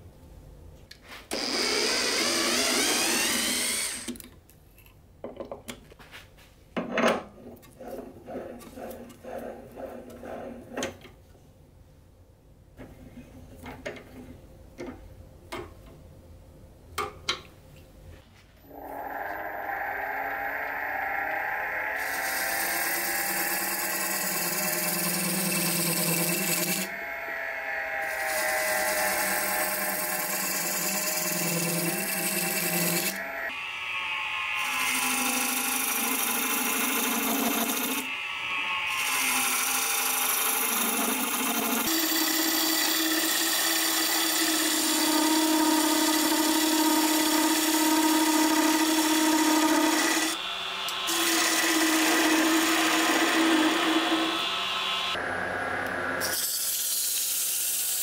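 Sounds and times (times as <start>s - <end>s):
wood lathe humming: 1.3s - 4.1s, 18.6s - 58.0s.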